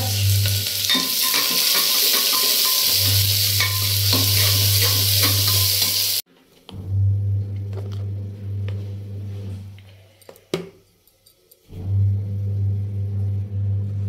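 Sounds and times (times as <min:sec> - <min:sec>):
onion sizzling in oil: 0:00.0 - 0:06.2
metal spoon scraping pot: 0:00.8 - 0:06.0.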